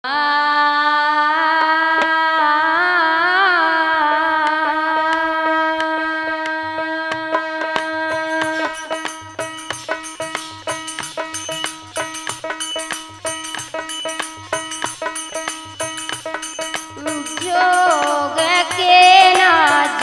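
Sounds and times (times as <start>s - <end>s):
harmonium drone: 2.6s - 20.0s
hand drum: 4.5s - 20.0s.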